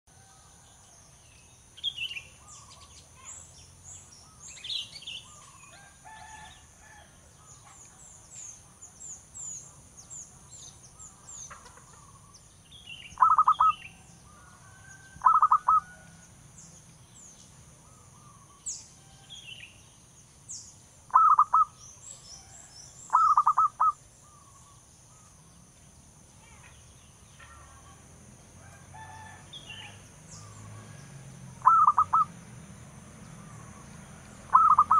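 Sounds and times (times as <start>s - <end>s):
small birds chirping: 0.7s - 34.9s
dove rapid staccato cooing: 13.2s - 13.7s, 15.2s - 15.9s, 21.1s - 21.7s, 23.1s - 24.0s, 31.6s - 32.3s, 34.5s - 34.9s.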